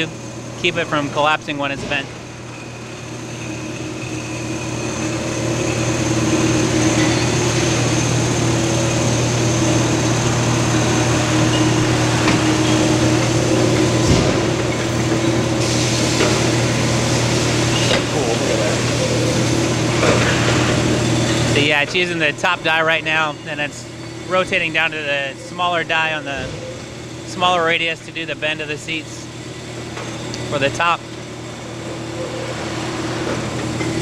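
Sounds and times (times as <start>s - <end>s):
machine hum: 0.0s - 34.0s.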